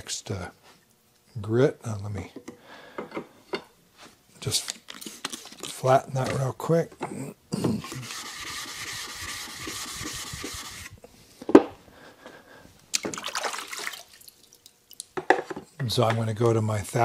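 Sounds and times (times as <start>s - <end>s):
stone rubbing on abrasive: 7.8s - 11.0s.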